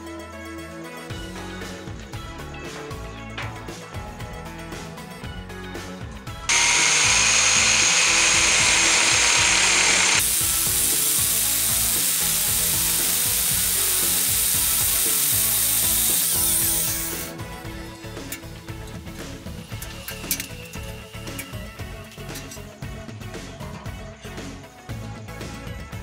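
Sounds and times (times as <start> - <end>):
angle grinder cutting steel pipe: 6.5 - 17.3.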